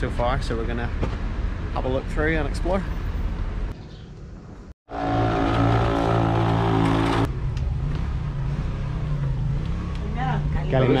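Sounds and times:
engine hum: 0:03.4 - 0:11.0.

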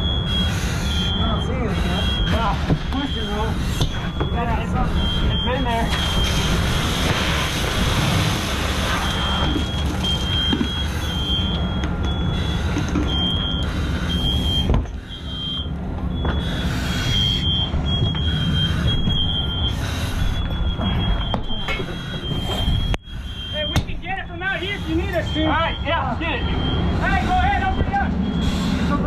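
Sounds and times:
electronic alarm chirping: 0:00.0 - 0:07.3, 0:08.8 - 0:28.9
loud rushing noise: 0:06.0 - 0:09.4.

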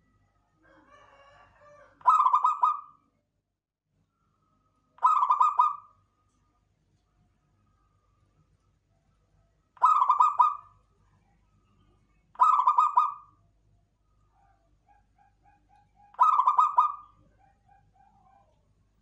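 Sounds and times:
dove cooing: 0:01.6 - 0:02.9, 0:05.0 - 0:05.9, 0:09.8 - 0:10.7, 0:12.4 - 0:13.3, 0:14.4 - 0:18.6.

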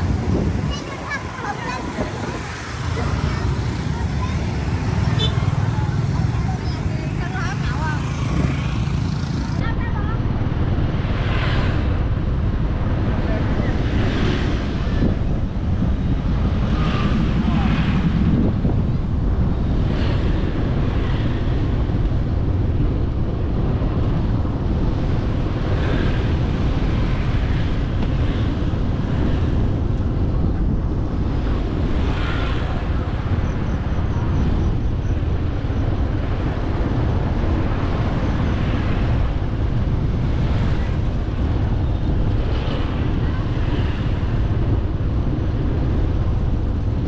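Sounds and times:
passing vehicles: 0:00.0 - 0:47.0
road and engine noise: 0:00.0 - 0:47.0
wind buffeting microphone: 0:00.0 - 0:47.0.

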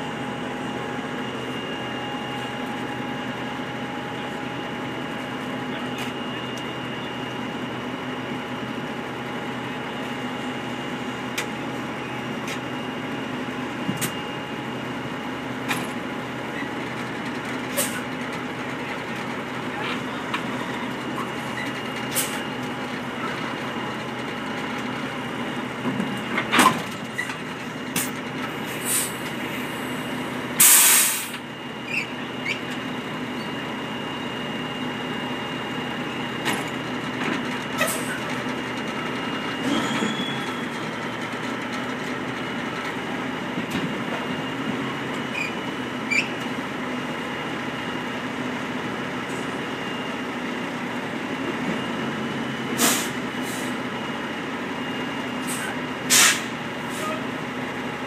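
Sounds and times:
diesel truck engine idling: 0:00.0 - 0:58.0
air brake hiss: 0:28.7 - 0:29.9, 0:30.6 - 0:31.4, 0:52.8 - 0:53.8, 0:55.4 - 0:57.2.

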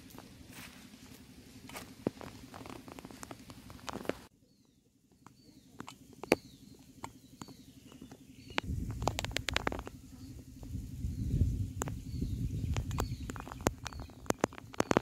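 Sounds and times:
clicks and rustles: 0:00.0 - 0:04.3, 0:05.2 - 0:10.2, 0:11.7 - 0:15.0
faint bird chirps: 0:04.3 - 0:15.0
low rumbling noise: 0:06.4 - 0:15.0.

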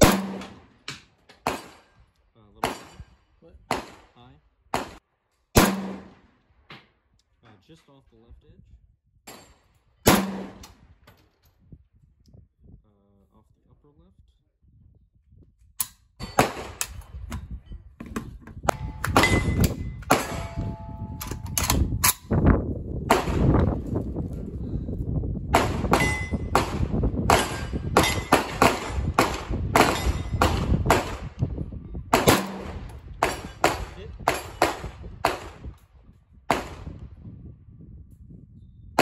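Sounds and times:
rifle shots: 0:00.0 - 0:01.9, 0:02.6 - 0:03.1, 0:03.7 - 0:04.1, 0:04.7 - 0:05.0, 0:05.6 - 0:06.3, 0:10.0 - 0:10.8, 0:16.3 - 0:17.0, 0:18.8 - 0:21.9, 0:23.1 - 0:23.7, 0:25.5 - 0:31.4, 0:32.1 - 0:35.7, 0:36.5 - 0:37.0
metallic clangs and pings: 0:18.8 - 0:21.6.

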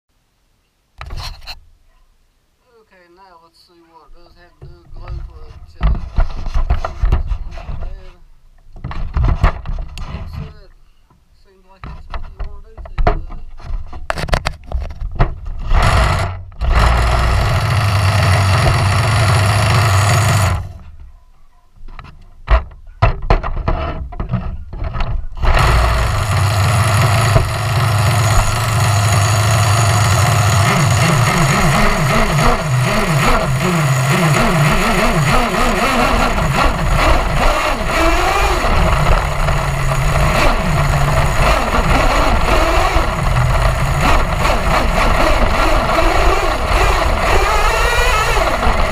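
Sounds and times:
engine sputters: 0:15.3 - 0:21.0, 0:25.3 - 0:48.9
small nitro engine revving: 0:15.6 - 0:20.8, 0:25.3 - 0:48.9.

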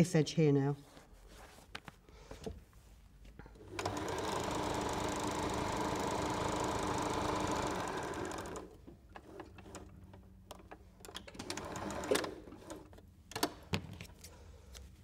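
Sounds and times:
sewing machine stitching: 0:03.6 - 0:13.0.

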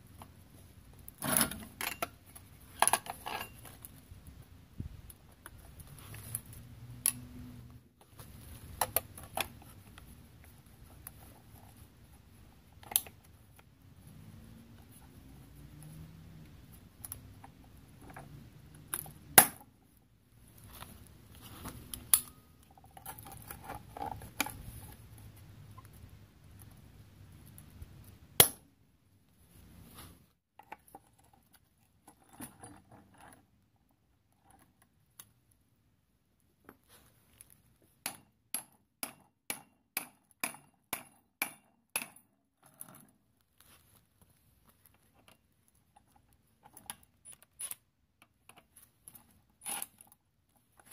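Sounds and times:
sharp metal knocks: 0:38.0 - 0:42.2.

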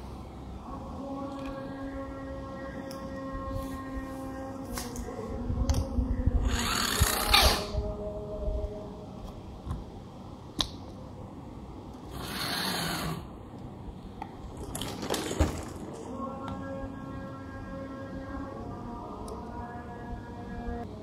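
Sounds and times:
toy motor and gears whirring: 0:06.5 - 0:07.7, 0:12.1 - 0:13.2.

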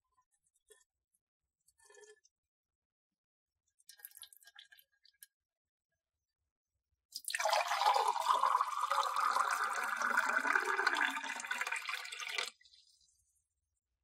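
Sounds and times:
liquid pouring into a glass: 0:07.2 - 0:13.0.

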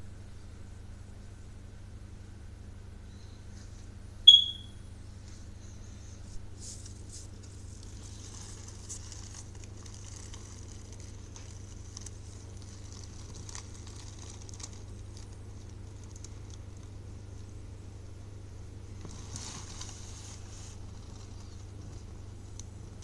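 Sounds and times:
aquarium pump humming: 0:00.0 - 0:23.0.

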